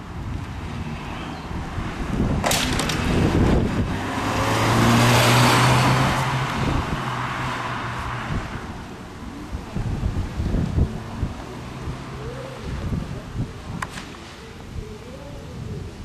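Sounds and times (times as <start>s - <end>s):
clatter of sharp knocks: 2.4s - 3.2s
car engine driving past: 2.8s - 8.6s.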